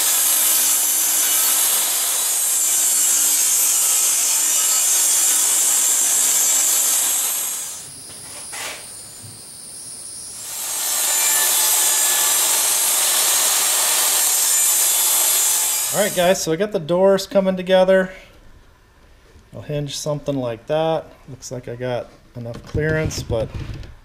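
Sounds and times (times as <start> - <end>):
table saw cutting wood: 0.0 - 9.4, 10.0 - 16.4.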